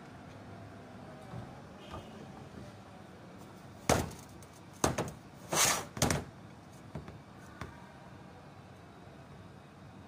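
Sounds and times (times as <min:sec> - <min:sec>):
metal knocks and clunks: 0:03.8 - 0:05.2.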